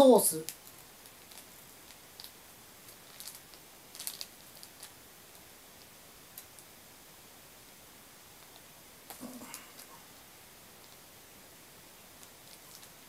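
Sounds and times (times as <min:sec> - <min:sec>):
chewing snack in plastic wrapper: 0:00.5 - 0:05.0, 0:12.2 - 0:13.0.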